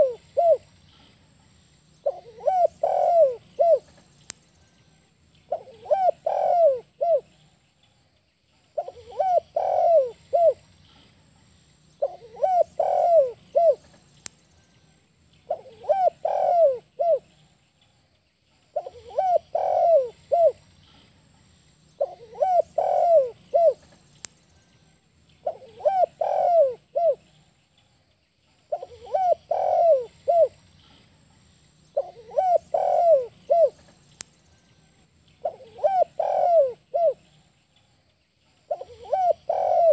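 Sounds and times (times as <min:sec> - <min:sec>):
dove cooing: 0:00.0 - 0:00.7, 0:02.0 - 0:04.0, 0:05.5 - 0:07.4, 0:08.8 - 0:10.6, 0:12.0 - 0:13.9, 0:15.5 - 0:17.3, 0:18.8 - 0:20.6, 0:22.0 - 0:23.9, 0:25.4 - 0:27.4, 0:28.7 - 0:30.6, 0:32.0 - 0:33.9, 0:35.4 - 0:37.4, 0:38.7 - 0:39.9.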